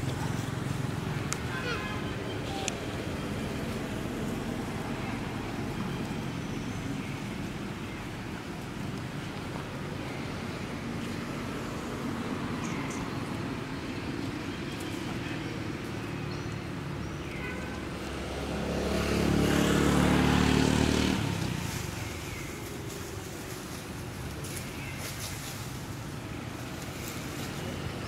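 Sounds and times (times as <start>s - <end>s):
outdoor background noise: 0.0s - 28.0s
vehicle engine passing by: 18.0s - 23.5s.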